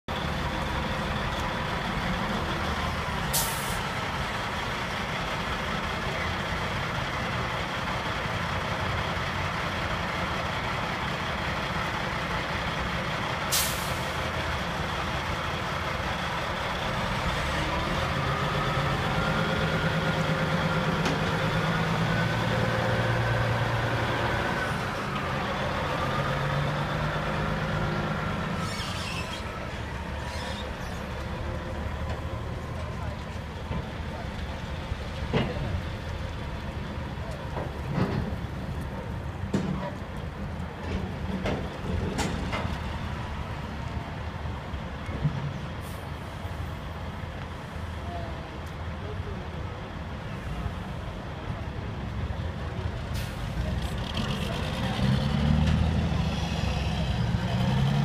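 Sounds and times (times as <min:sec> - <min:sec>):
diesel truck engine running: 0:00.1 - 0:28.6
air brake hisses: 0:03.3 - 0:03.9, 0:13.5 - 0:14.1, 0:53.1 - 0:53.5.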